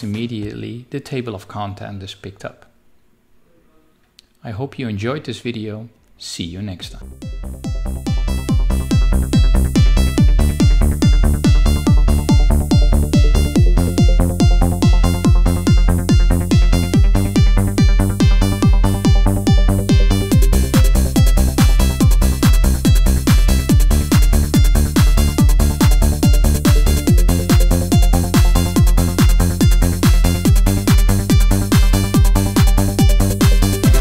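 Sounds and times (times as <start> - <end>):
electronic dance music: 7.0 - 34.0.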